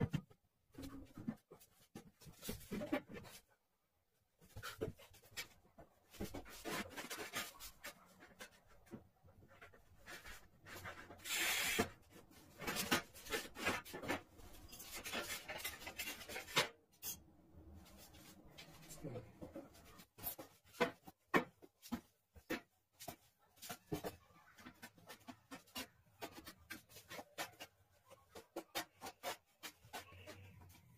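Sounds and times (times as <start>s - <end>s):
marker scratching on tile: 10.2s - 12.0s
tile cutter scoring hiss: 11.2s - 12.0s.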